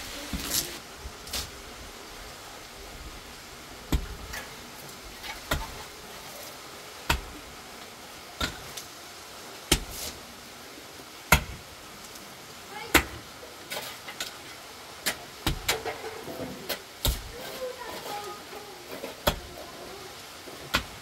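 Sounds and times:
pickaxe striking stony dirt: 0:09.7 - 0:10.1, 0:11.3 - 0:11.6, 0:15.1 - 0:15.9, 0:17.0 - 0:17.3, 0:19.2 - 0:19.4.

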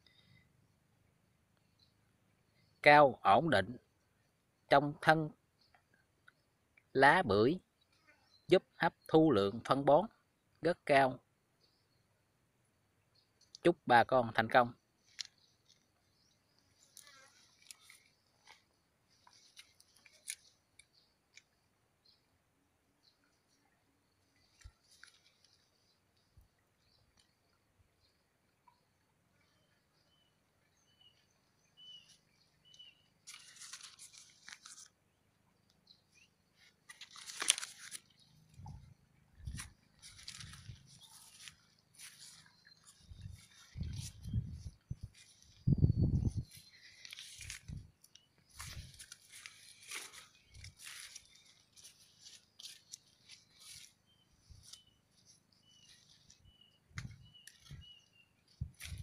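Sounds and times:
dry leaves rustling and crunching: 0:33.2 - 0:34.9, 0:36.9 - 0:38.1, 0:39.5 - 0:44.3, 0:46.6 - 0:47.9, 0:48.5 - 0:56.4, 0:58.6 - 0:59.0
crackly clicks: 0:36.8 - 0:38.2.

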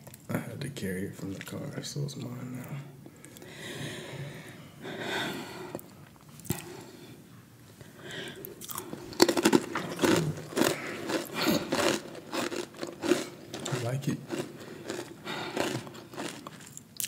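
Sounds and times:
crunchy snack chewing: 0:08.5 - 0:17.0.

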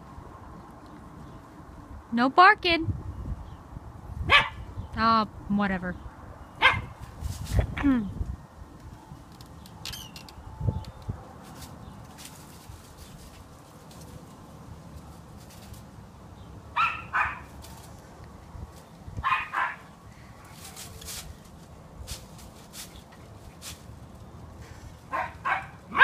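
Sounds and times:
dog barking: 0:04.3 - 0:04.6, 0:06.6 - 0:06.9, 0:16.8 - 0:17.5, 0:19.2 - 0:19.9, 0:25.1 - 0:26.0.

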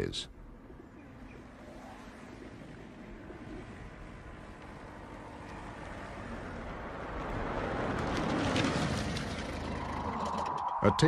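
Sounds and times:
road noise: 0:00.0 - 0:11.0
vehicle engine: 0:01.2 - 0:11.0.

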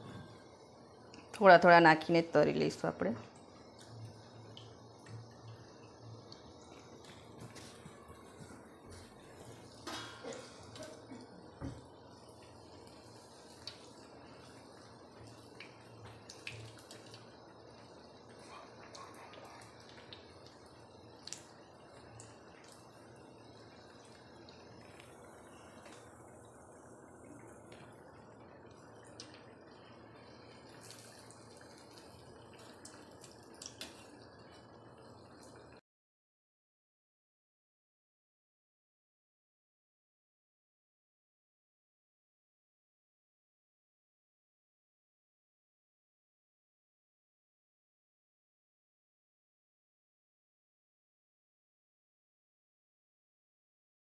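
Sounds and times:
batter frying in oil: 0:00.0 - 0:35.8.

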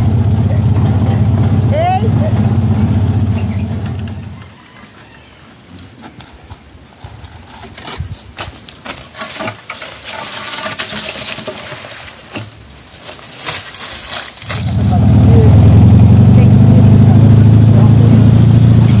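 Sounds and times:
gate scraping through dry leaves: 0:07.3 - 0:16.0.

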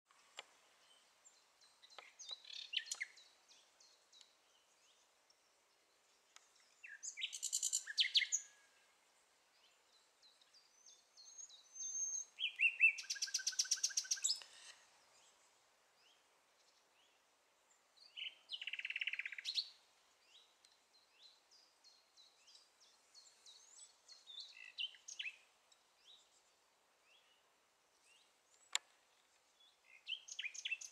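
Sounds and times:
nightingale singing: 0:00.4 - 0:30.9
soft whistles and chirps: 0:01.6 - 0:05.0, 0:06.3 - 0:08.8, 0:09.9 - 0:15.4, 0:18.0 - 0:26.5, 0:29.6 - 0:30.9.

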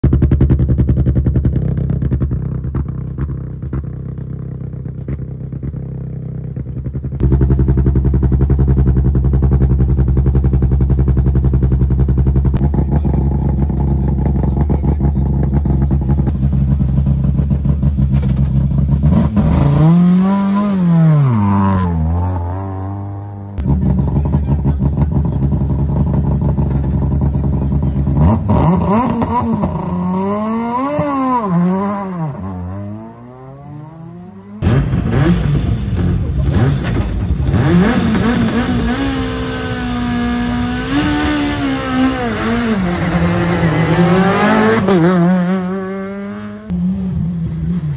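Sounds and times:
rally car engine idling and revving: 0:00.0 - 0:47.9.

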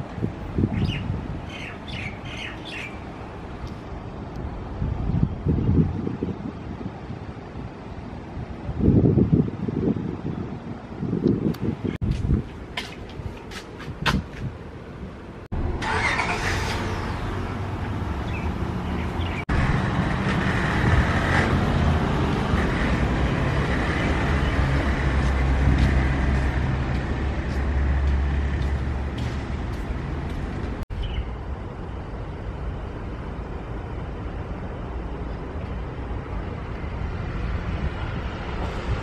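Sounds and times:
passing traffic rushing: 0:00.0 - 0:39.0
vehicle engine humming: 0:14.5 - 0:39.0.

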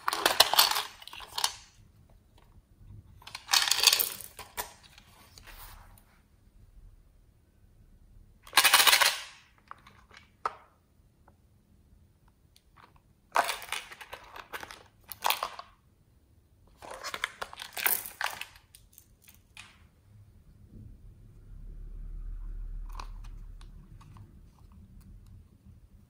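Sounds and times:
plastic toy rattling: 0:00.0 - 0:01.8, 0:03.2 - 0:04.8, 0:08.5 - 0:10.2.

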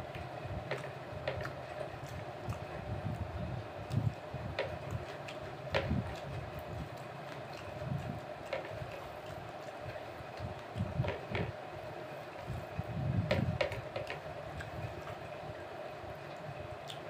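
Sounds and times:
steady background hum: 0:00.0 - 0:17.0
fingers mixing food on plate: 0:03.8 - 0:12.6.

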